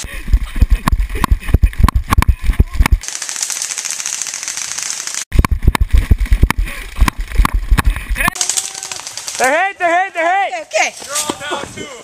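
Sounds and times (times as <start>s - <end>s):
airsoft guns firing full auto: 3.0s - 5.3s, 8.4s - 9.6s.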